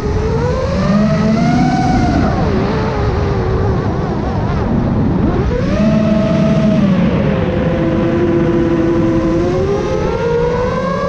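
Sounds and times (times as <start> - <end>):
drone motors whining: 0.0 - 11.0.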